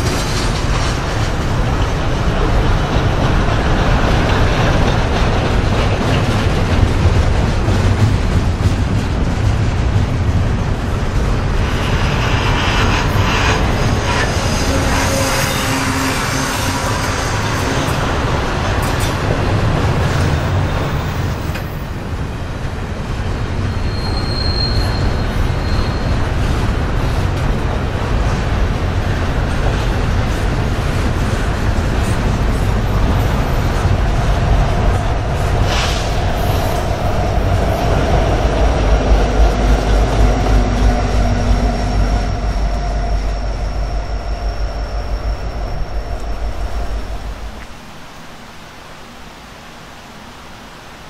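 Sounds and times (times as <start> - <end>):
train wheels clattering: 0.0 - 47.5
diesel locomotive engine rumble: 0.0 - 48.2
wheels squealing on rail: 11.4 - 19.3, 23.5 - 27.4, 30.2 - 47.6.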